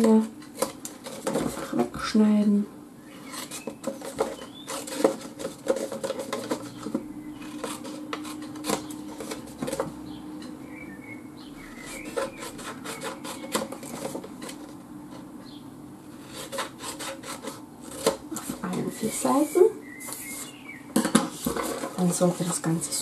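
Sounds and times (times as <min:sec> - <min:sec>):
paper rustling: 0:00.0 - 0:01.9, 0:03.2 - 0:09.9, 0:11.8 - 0:14.8, 0:16.2 - 0:23.0
scissors snipping paper: 0:03.2 - 0:09.9, 0:11.8 - 0:14.6.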